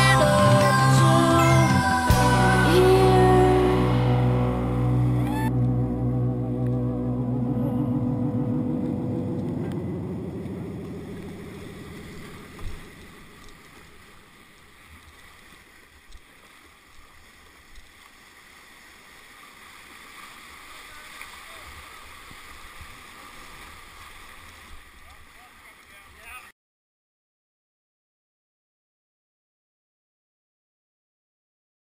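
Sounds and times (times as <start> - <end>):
background music: 0.0 - 10.7
river water rushing: 8.8 - 25.9.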